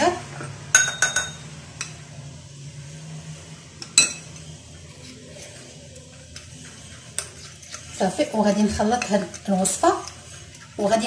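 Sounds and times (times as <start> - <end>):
spoon clinking against ceramic bowl: 0.8 - 2.0, 3.8 - 4.3.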